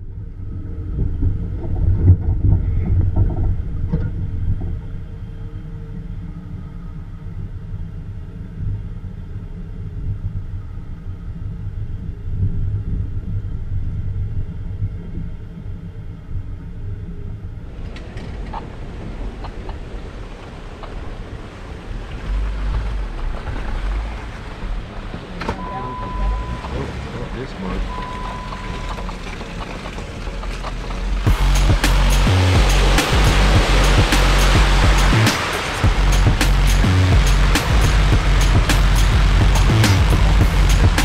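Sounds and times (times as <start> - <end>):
vehicle engine rumbling: 0.0 - 41.0
windy hiss: 17.7 - 25.4, 31.0 - 41.0.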